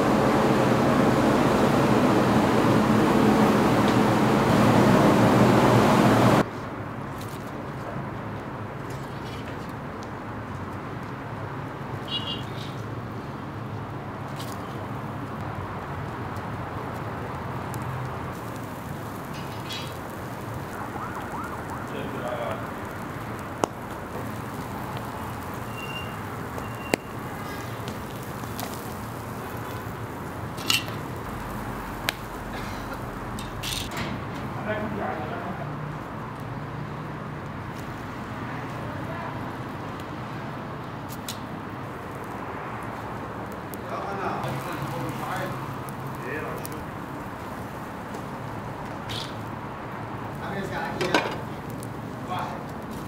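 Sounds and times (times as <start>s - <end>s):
embers crackling: 0.0s - 53.0s
fish sizzling over charcoal: 0.0s - 53.0s
street background noise: 0.0s - 53.0s.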